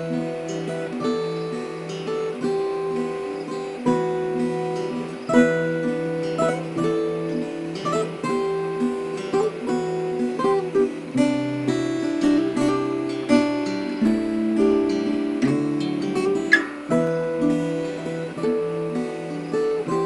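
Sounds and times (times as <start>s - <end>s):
acoustic guitars playing: 0.0s - 20.0s
sharp bright guitar pluck: 13.7s - 17.8s.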